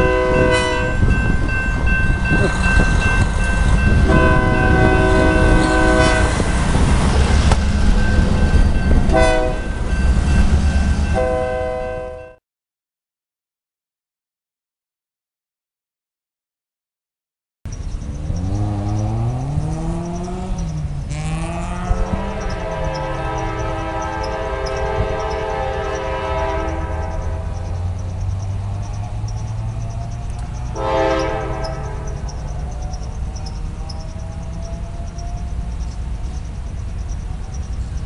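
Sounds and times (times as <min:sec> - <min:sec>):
locomotive air horn blasts: 0:00.0 - 0:01.2, 0:03.8 - 0:06.6, 0:09.1 - 0:09.8, 0:11.0 - 0:12.4, 0:21.1 - 0:27.7, 0:30.7 - 0:32.3
locomotive engine rumble: 0:00.0 - 0:12.1, 0:17.7 - 0:38.0
crossing signal bell ringing: 0:00.0 - 0:12.4, 0:17.7 - 0:38.0.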